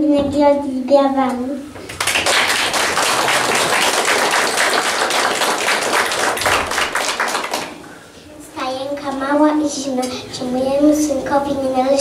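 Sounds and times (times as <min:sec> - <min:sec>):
audience applause: 0:01.9 - 0:07.9.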